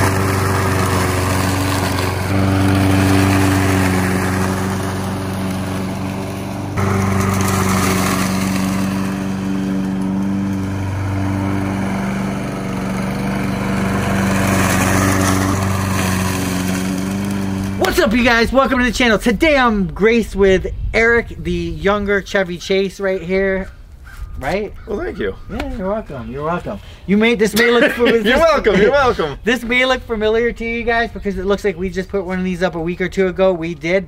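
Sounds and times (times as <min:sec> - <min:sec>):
lawn mower engine running: 0:00.0 - 0:19.3.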